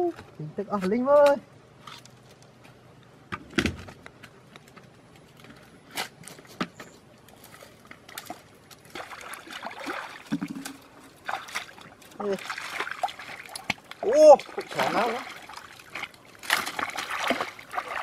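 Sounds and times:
feet sloshing in muddy water: 7.3 - 18.0.

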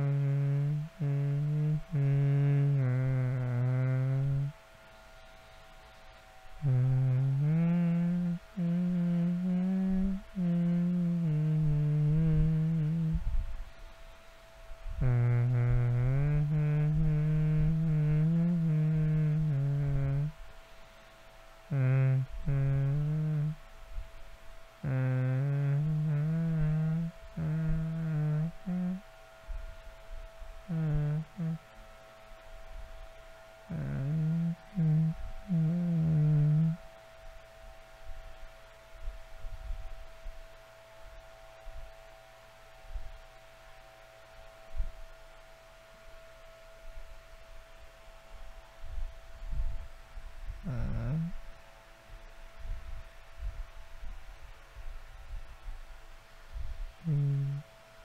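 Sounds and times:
man humming: 0.0 - 4.6, 6.5 - 13.9, 14.8 - 20.6, 21.7 - 23.7, 24.8 - 29.6, 30.6 - 31.8, 33.6 - 37.0, 50.5 - 51.6, 57.0 - 57.8.

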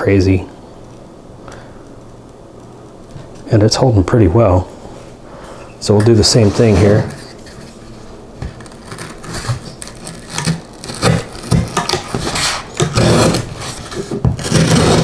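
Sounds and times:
knife cutting cardboard: 8.6 - 15.0.

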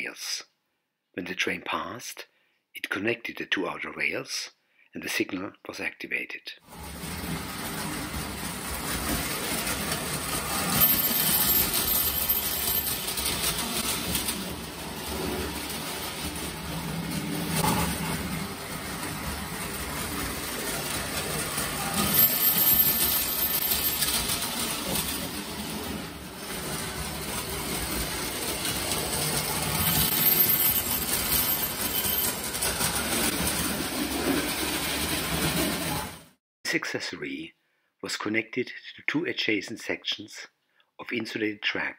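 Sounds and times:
toy train wheels clattering: 7.6 - 18.0, 19.6 - 36.0.

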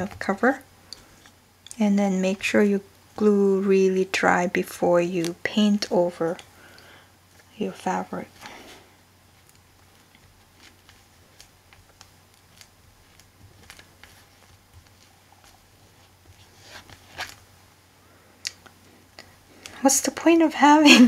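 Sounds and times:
hands rustling fabric: 4.8 - 19.9.

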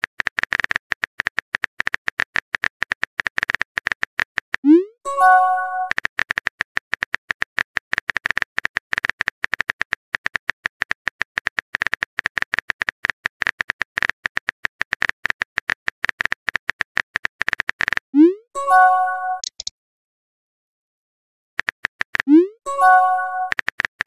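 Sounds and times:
phone keyboard typing clicks: 19.3 - 19.7.

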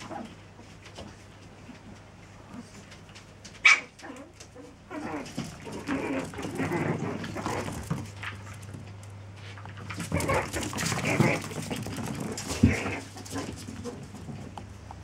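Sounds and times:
puppies scuffling: 0.0 - 15.0
puppies yapping: 3.6 - 5.2, 10.0 - 14.0.

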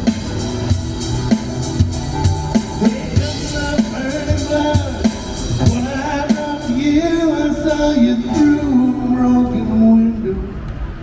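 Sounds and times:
drum kit beat: 0.0 - 8.5
acoustic guitars: 0.0 - 10.1
person singing: 2.8 - 10.4.

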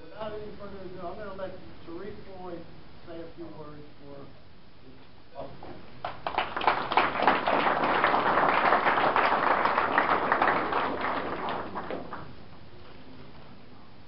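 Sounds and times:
audience applauding: 6.0 - 12.4.

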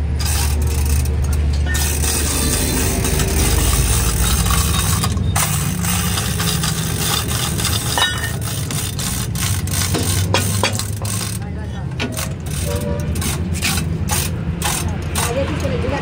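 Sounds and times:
engine hum: 0.0 - 16.0
hoist chain rattling: 0.0 - 16.0
metal tools clinking: 0.1 - 15.8
short metallic ring: 7.7 - 8.4.

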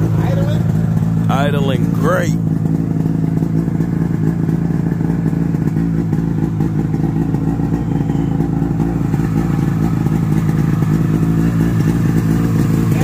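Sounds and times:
snowmobile engine idling: 0.0 - 13.0.

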